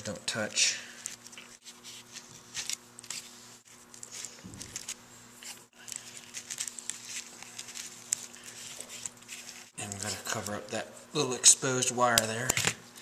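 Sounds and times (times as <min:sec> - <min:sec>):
tape crackling and rustling: 0:01.0 - 0:10.7.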